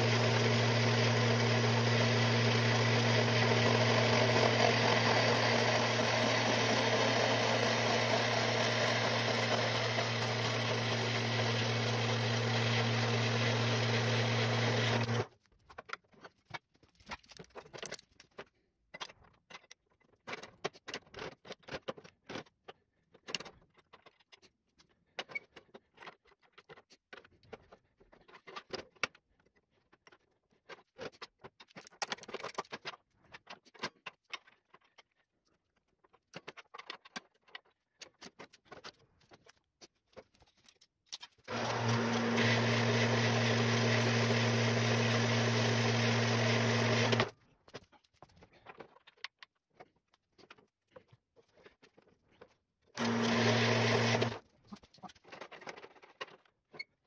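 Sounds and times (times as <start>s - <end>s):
band saw cutting metal tube: 0.0s - 15.3s, 41.5s - 47.3s, 53.0s - 54.4s.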